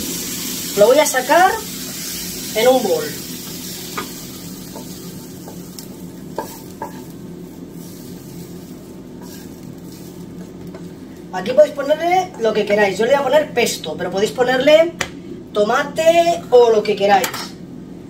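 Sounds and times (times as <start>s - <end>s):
low hum: 0.0s - 16.7s
wooden spatula scraping a pan: 3.4s - 11.4s.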